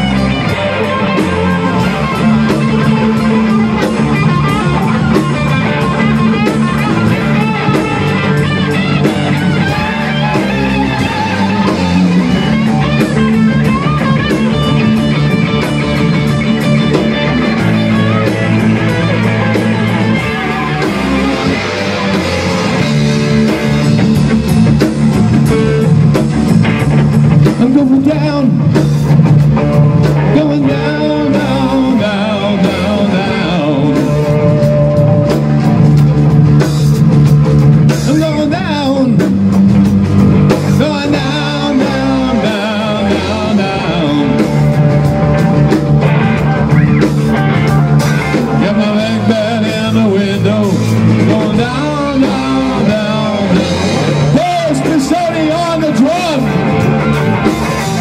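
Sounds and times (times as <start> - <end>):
drum kit: 0.0 - 58.0
electric guitars: 0.0 - 58.0
person singing: 27.4 - 28.8, 30.1 - 35.9, 38.0 - 39.4, 40.7 - 58.0.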